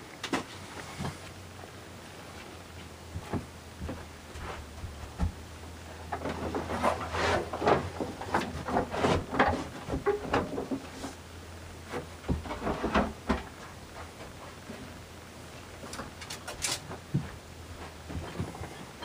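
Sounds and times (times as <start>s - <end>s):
gear knocking and scuffing: 2.4s - 5.5s.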